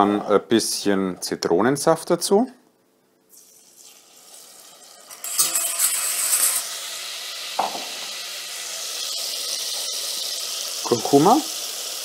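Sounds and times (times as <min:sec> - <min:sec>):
juice sizzling in hot oil: 0:03.3 - 0:12.0.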